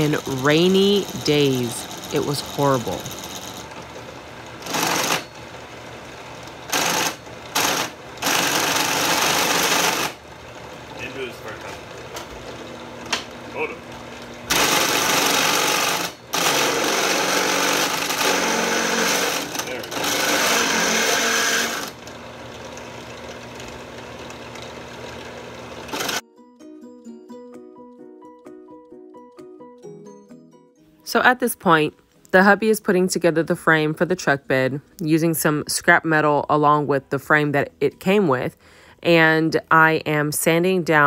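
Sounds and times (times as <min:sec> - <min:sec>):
drill bit cutting metal: 0:00.0 - 0:03.6, 0:14.5 - 0:22.0
drill press motor running: 0:00.0 - 0:26.2.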